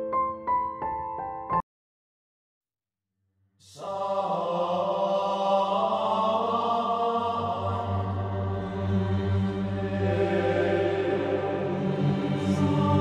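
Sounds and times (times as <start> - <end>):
mantra-style singing: 3.6 - 13.0
steady low drone: 7.1 - 13.0.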